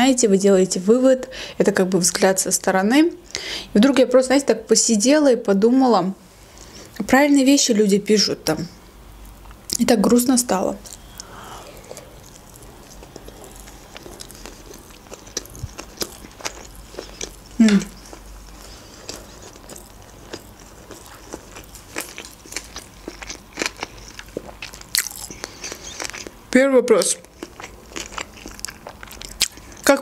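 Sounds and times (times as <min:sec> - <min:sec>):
person chewing food: 0:10.8 - 0:26.4, 0:27.2 - 0:29.9.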